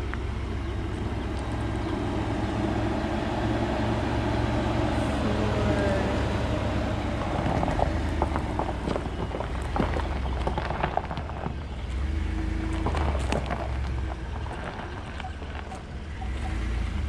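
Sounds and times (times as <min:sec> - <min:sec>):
pickup engine droning: 0:00.0 - 0:17.0
sharp crackles: 0:06.9 - 0:17.0.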